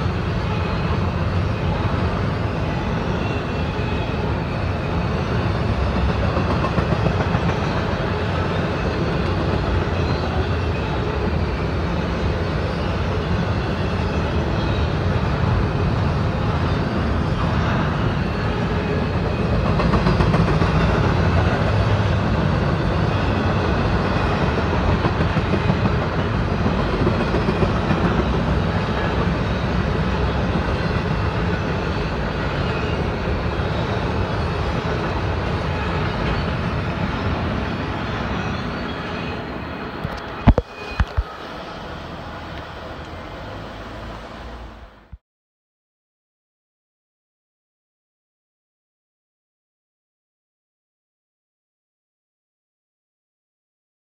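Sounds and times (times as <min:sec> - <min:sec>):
freight train rolling past: 0:00.0 - 0:45.2.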